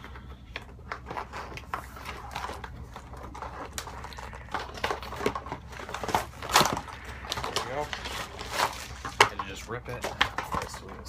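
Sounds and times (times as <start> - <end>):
cardboard packaging scraping and rustling: 0.8 - 11.0.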